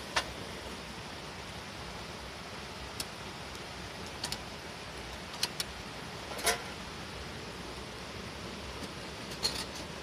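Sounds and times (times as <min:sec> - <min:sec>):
campfire hissing: 0:00.0 - 0:10.0
fire crackles and pops: 0:02.3 - 0:06.8.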